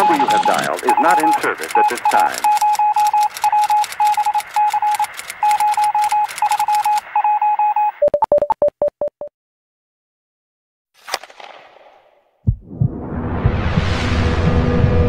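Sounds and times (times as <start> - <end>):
computer keys clicking: 0.0 - 7.0
quick electronic beeps: 0.0 - 8.5
short low beeps: 0.0 - 8.6.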